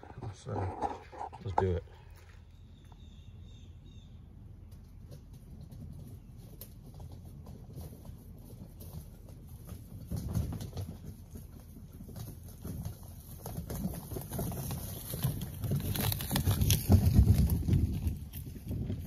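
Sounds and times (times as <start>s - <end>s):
dolly wheels rolling over dry leaves: 5.1s - 19.0s.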